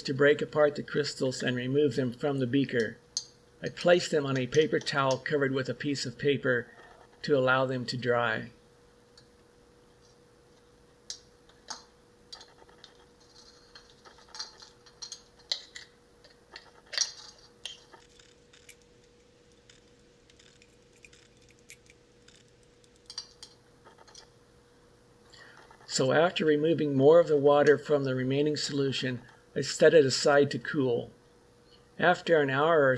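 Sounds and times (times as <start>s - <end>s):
faint steady hum: 0.0s - 32.9s
crystals clicking on glass: 17.0s - 24.2s.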